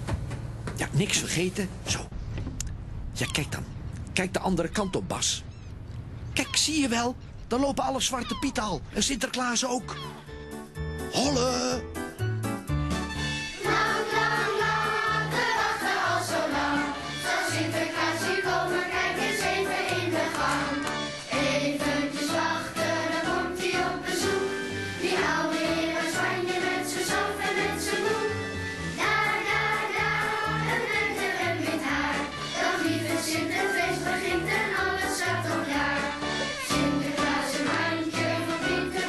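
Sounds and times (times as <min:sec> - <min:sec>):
instrumental backing music: 0:09.8 - 0:39.0
children singing in chorus: 0:13.6 - 0:28.3, 0:29.0 - 0:36.0.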